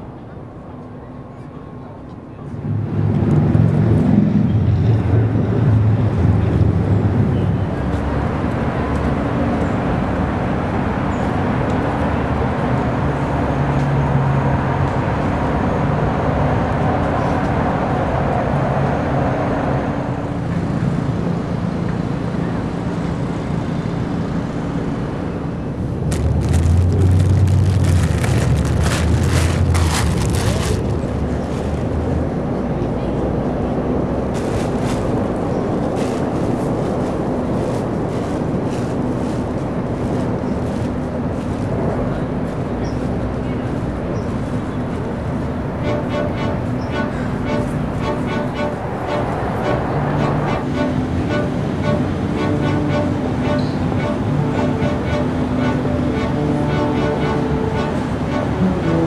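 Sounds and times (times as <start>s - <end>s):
traffic rumble: 0.0s - 59.0s
wind noise on microphone: 2.5s - 59.0s
deep rumbling and crackling: 25.9s - 32.3s.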